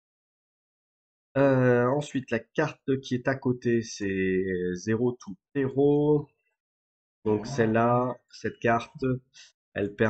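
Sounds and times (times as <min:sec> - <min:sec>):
man speaking: 0:01.4 - 0:06.3, 0:07.3 - 0:10.0.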